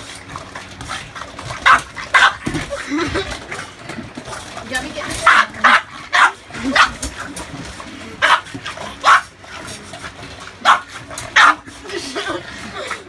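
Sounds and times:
dog barking: 0:01.6 - 0:02.4, 0:05.2 - 0:07.0, 0:08.2 - 0:09.3, 0:10.6 - 0:11.6.

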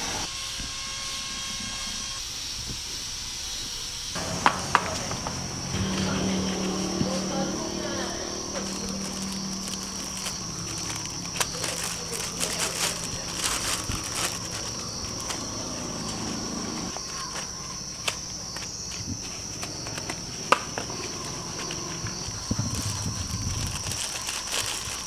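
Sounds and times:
crickets chirping: 0:01.0 - 0:25.0
cardboard egg trays knocking: 0:04.2 - 0:05.4
plastic bag crinkling: 0:06.2 - 0:25.0.

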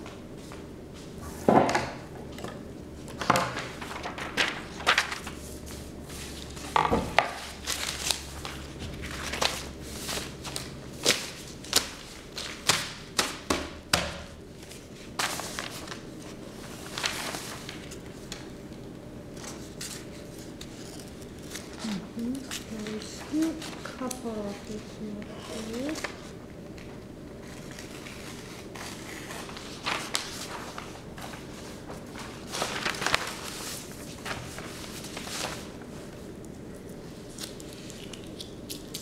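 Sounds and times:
paper crinkles and taps: 0:29.8 - 0:35.7.

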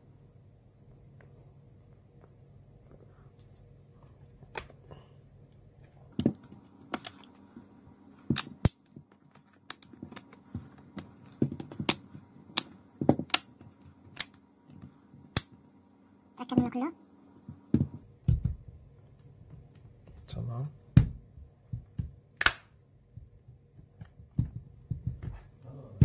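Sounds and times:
plastic clips snapping into place: 0:22.4 - 0:22.7.

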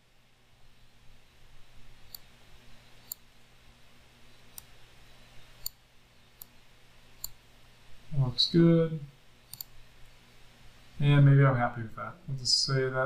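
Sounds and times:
faint low hum: 0:00.0 - 0:13.0
computer mouse clicking: 0:02.1 - 0:02.3, 0:03.0 - 0:03.2, 0:04.5 - 0:04.7, 0:06.4 - 0:06.6, 0:09.5 - 0:09.7.

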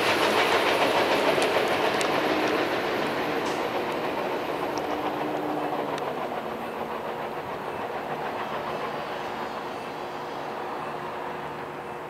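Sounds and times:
diesel locomotive engine drone: 0:00.0 - 0:12.0
train wheels rolling on rails: 0:00.0 - 0:12.0.

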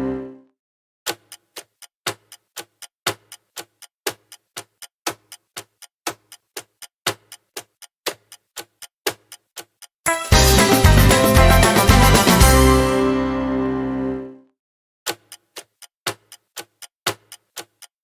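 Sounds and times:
countdown timer ticking: 0:01.1 - 0:13.3
music: 0:10.1 - 0:14.5.

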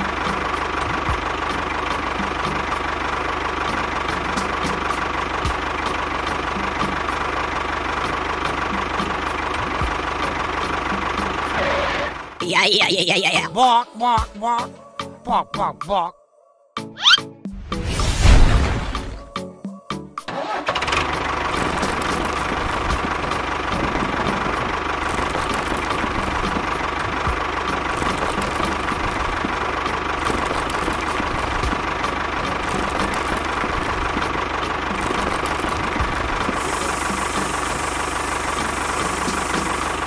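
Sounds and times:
motor running with whine: 0:27.9 - 0:40.0.

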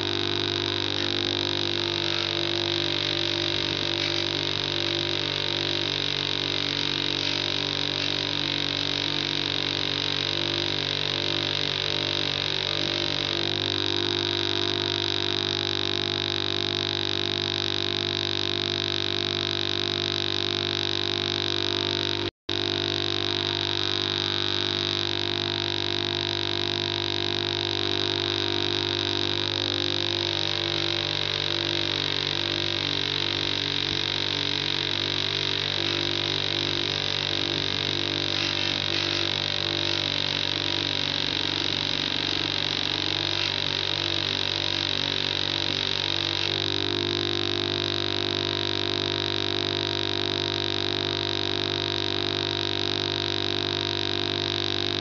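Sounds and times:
bench grinder grinding metal: 0:00.0 - 0:55.0.

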